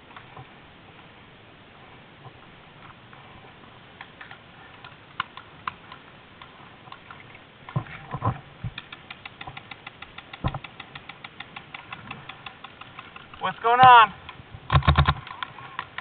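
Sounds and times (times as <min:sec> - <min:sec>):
paintball markers firing: 0:08.7 - 0:13.5.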